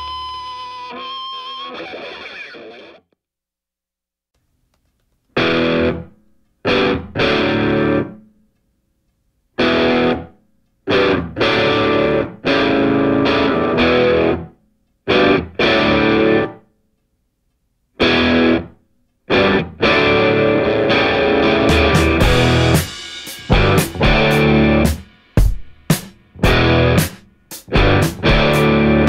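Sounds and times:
distorted electric guitar chords: 0.0 - 3.1, 5.4 - 8.2, 9.6 - 10.3, 10.9 - 14.5, 15.1 - 16.6, 18.0 - 18.7, 19.3 - 25.1, 26.3 - 29.0.

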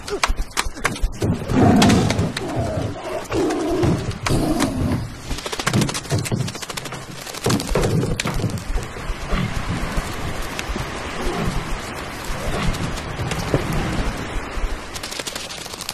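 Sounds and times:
sea noise: 0.0 - 15.9
tiger growling: 1.2 - 5.2
sharp clicks and knocks: 3.8 - 9.0.

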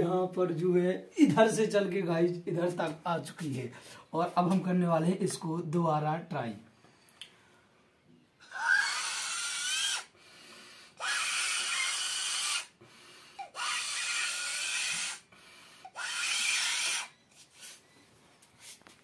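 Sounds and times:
person blowing up a balloon: 10.9 - 12.8.

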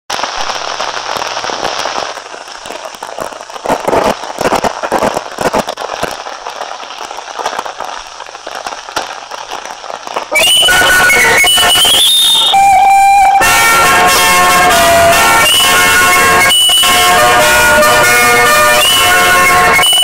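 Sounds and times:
steady hiss: 0.1 - 12.5
film crackling and popping: 0.1 - 20.0.

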